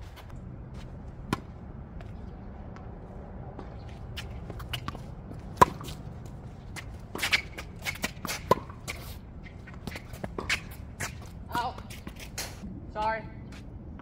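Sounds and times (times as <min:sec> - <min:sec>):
shoes scuffing on court: 0:03.6 - 0:12.6
tennis racket striking ball: 0:04.2 - 0:06.0, 0:06.8 - 0:09.1.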